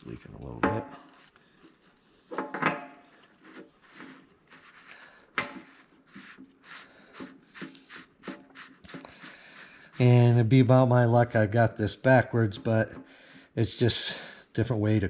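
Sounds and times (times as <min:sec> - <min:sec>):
rag rubbing on metal: 0:03.4 - 0:10.8.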